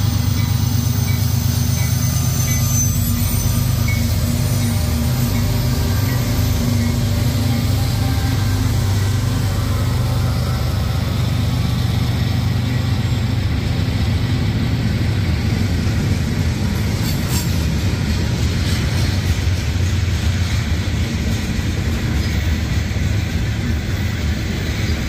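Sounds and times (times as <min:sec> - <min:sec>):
locomotive diesel engines: 0:00.0 - 0:25.0
train wheels rumbling on rails: 0:00.0 - 0:25.0.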